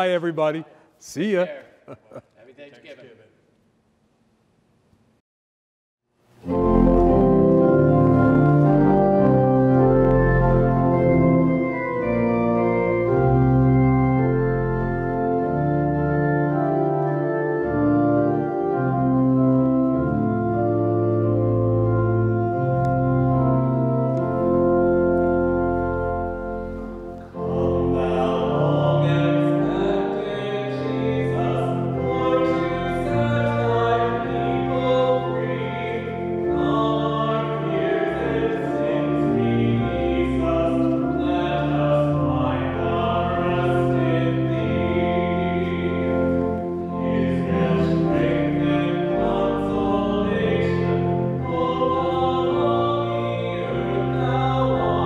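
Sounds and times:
organ playing slow chords: 6.4s - 55.0s
person singing: 27.4s - 55.0s.

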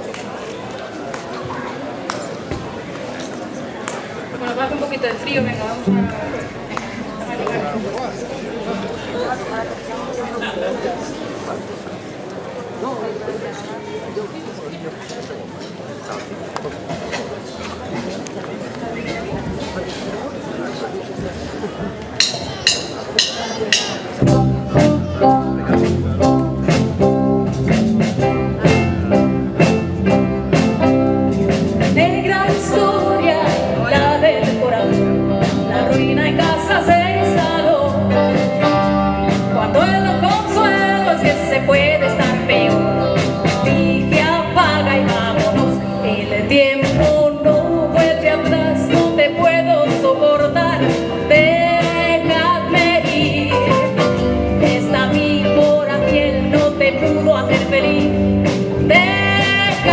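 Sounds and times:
electric bass: 5.4s - 10.2s, 24.2s - 59.9s
drum kit beat: 21.8s - 45.8s
woman singing into microphone: 32.0s - 38.4s, 39.4s - 53.8s, 54.6s - 59.9s.

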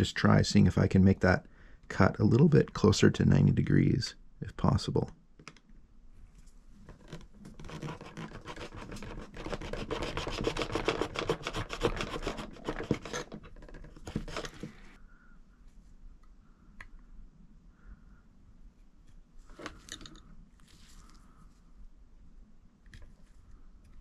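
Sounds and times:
knife sawing through hose: 7.6s - 13.3s.

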